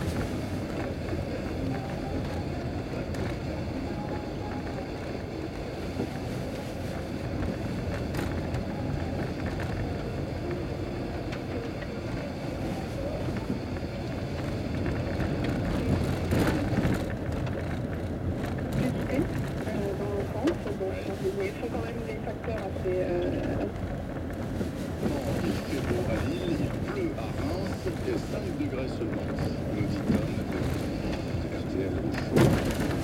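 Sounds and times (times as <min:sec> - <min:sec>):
tyres and engine rumble on gravel: 0:12.2 - 0:33.0.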